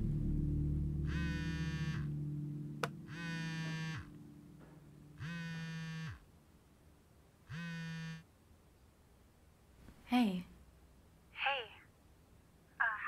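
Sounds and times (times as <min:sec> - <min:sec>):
music: 0:00.0 - 0:05.4
mobile phone vibrating: 0:01.0 - 0:02.2, 0:02.8 - 0:04.2, 0:05.2 - 0:06.3, 0:07.5 - 0:08.3.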